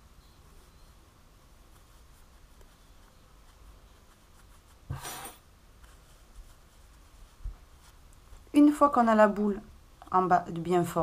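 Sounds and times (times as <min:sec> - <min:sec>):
hands rubbing fibre filling: 0:01.5 - 0:08.7.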